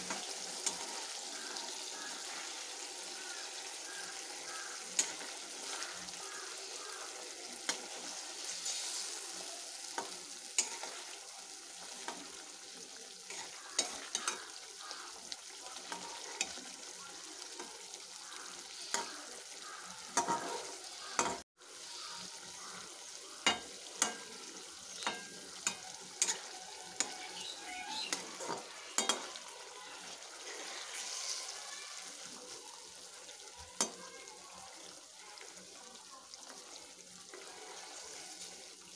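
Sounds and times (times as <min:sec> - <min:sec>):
curry sizzling: 0:00.0 - 0:38.9
spatula scraping metal pan: 0:30.4 - 0:31.6.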